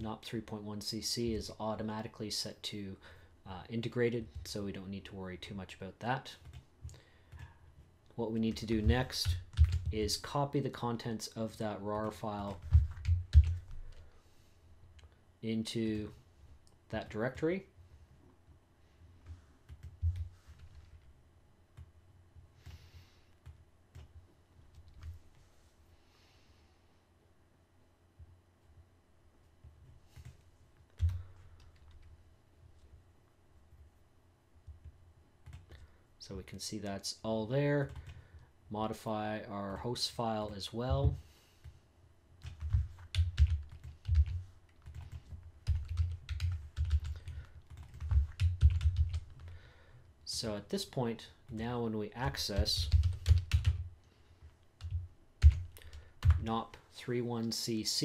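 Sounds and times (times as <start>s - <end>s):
computer keyboard typing: 8.7s - 10.1s, 12.0s - 14.0s, 19.2s - 21.1s, 23.4s - 25.2s, 31.0s - 32.1s, 42.4s - 49.5s, 52.5s - 53.9s, 54.8s - 56.5s
soft breath near microphone: 22.6s - 23.4s, 25.5s - 27.2s.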